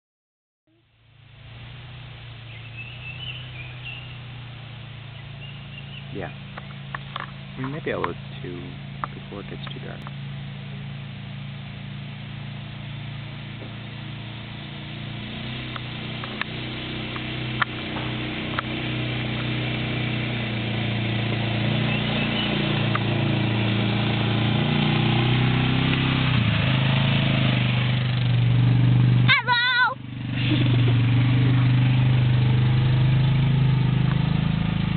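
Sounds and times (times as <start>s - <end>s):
atv engine passing by: 1.5s - 34.9s.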